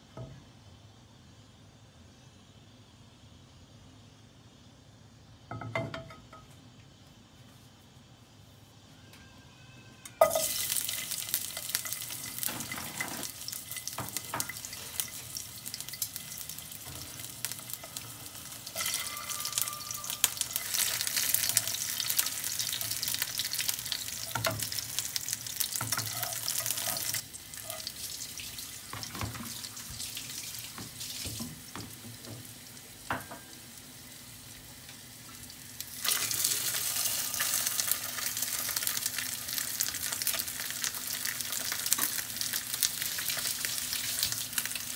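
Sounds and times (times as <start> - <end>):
garlic sizzling in hot oil: 10.2 - 44.9.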